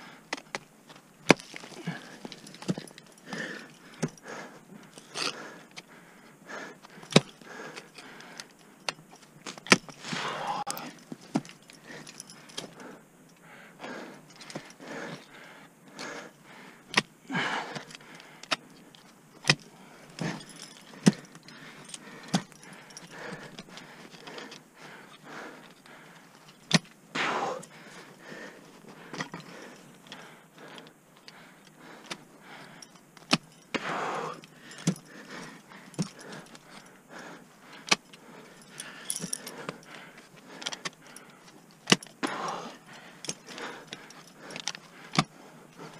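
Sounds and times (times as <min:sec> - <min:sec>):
carabiners jangling: 0:00.4 - 0:45.9
ice axes striking ice: 0:01.2 - 0:02.9.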